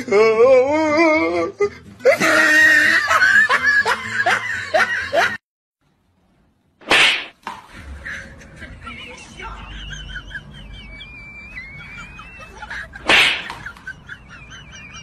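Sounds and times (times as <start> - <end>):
people laughing loudly: 2.0 - 5.4, 7.8 - 15.0.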